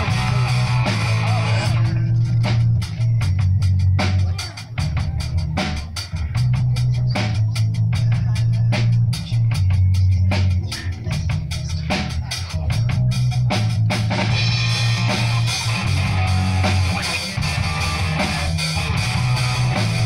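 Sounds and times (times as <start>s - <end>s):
rock band playing: 0.0s - 20.0s.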